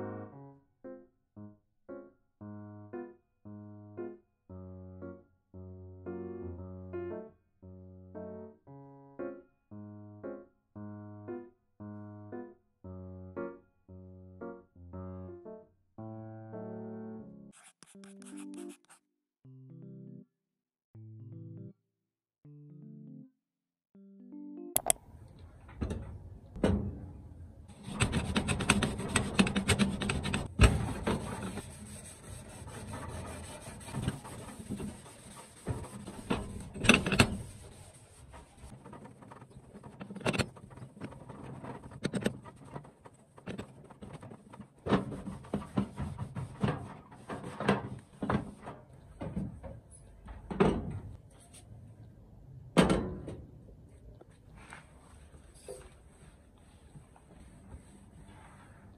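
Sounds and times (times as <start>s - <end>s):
knocks and clicks: 24.8s - 25.0s
scrubbing stove top: 28.4s - 38.8s.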